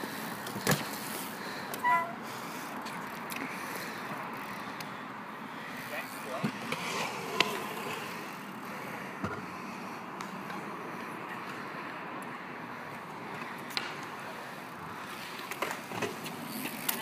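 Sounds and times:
scooter wheels rolling on concrete: 0.0s - 17.0s.

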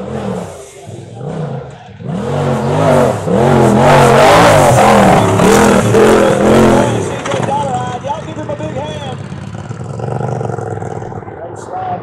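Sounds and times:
off-road vehicle engine revving: 0.0s - 11.7s.

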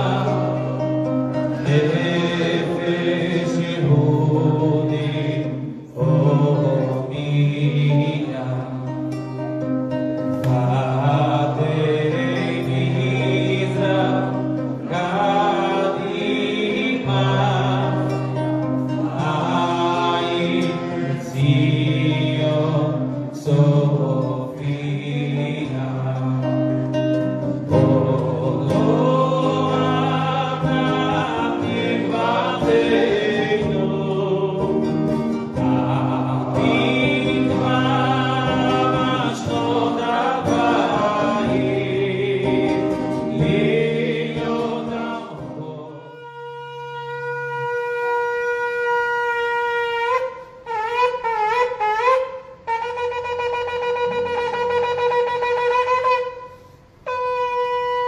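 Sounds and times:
man singing into a microphone: 0.0s - 9.4s, 10.4s - 51.6s
strummed classical guitar: 0.0s - 58.0s
ram's horn long note: 46.0s - 58.0s.

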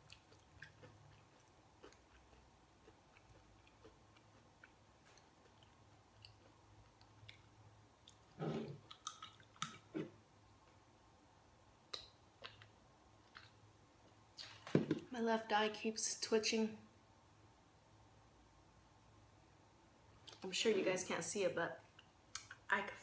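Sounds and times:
faint chewing: 0.0s - 10.8s, 11.9s - 14.6s.

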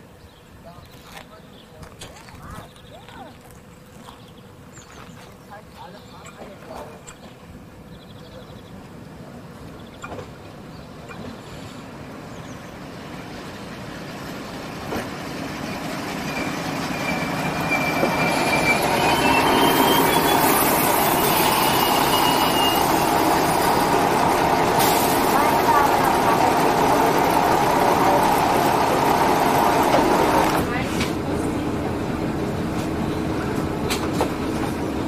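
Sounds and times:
diesel railbus running: 0.0s - 35.0s
thin high brake squeal: 15.6s - 23.2s.

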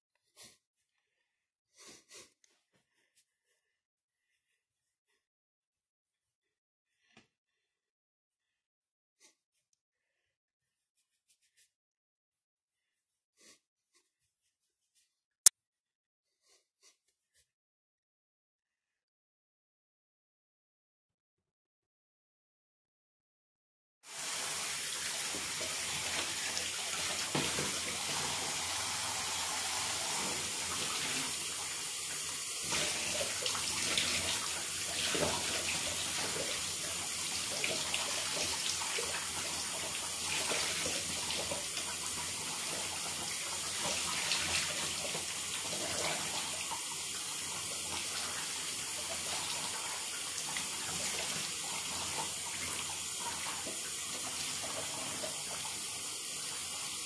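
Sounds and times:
shower water spraying: 24.1s - 57.0s.

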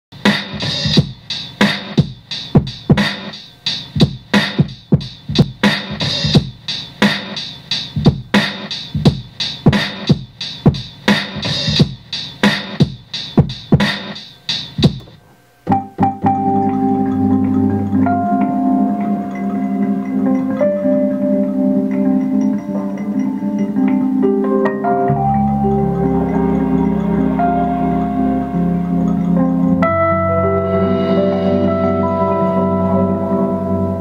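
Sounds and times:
hip-hop drum beat: 0.2s - 15.2s
sustained keyboard notes: 15.0s - 34.0s.

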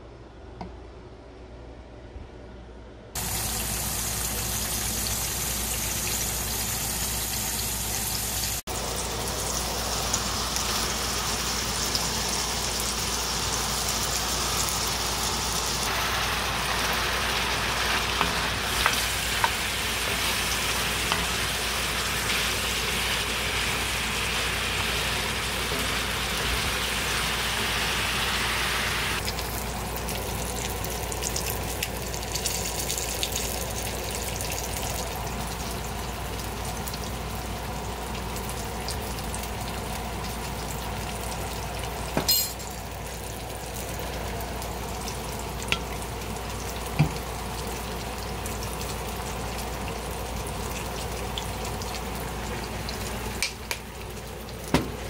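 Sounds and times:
food sizzling in a skillet: 3.2s - 29.6s.

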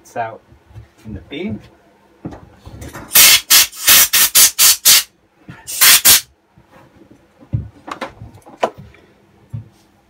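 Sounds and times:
compressed air hissing bursts: 3.1s - 5.1s, 5.7s - 6.3s.

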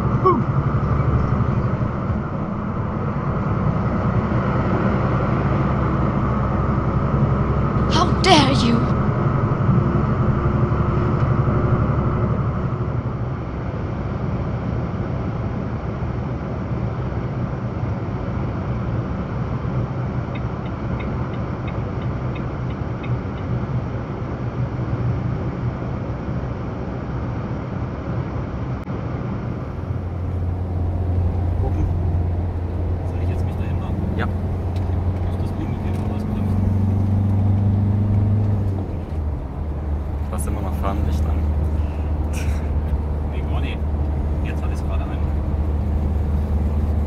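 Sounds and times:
truck engine drone: 0.0s - 47.0s
tyre and road noise: 0.0s - 47.0s
deep steady hum: 29.1s - 47.0s.

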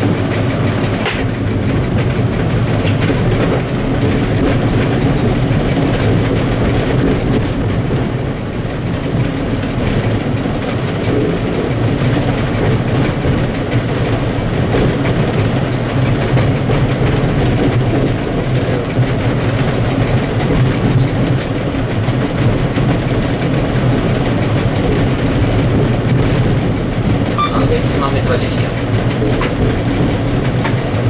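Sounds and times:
diesel locomotive engine drone: 0.0s - 31.0s
wheels clicking and rattling over rails: 0.0s - 31.0s.

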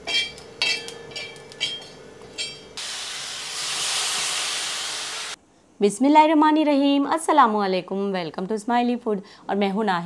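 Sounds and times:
masala sizzling in hot pan: 2.7s - 5.4s.

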